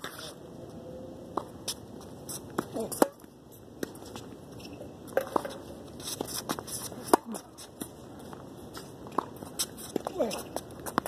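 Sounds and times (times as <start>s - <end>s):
racket hitting tennis ball: 1.4s - 4.2s, 5.1s - 7.9s
tennis ball bouncing: 2.5s - 4.3s, 5.1s - 5.6s, 6.2s - 8.4s, 9.0s - 11.0s
shoes squeaking on court: 9.0s - 11.0s.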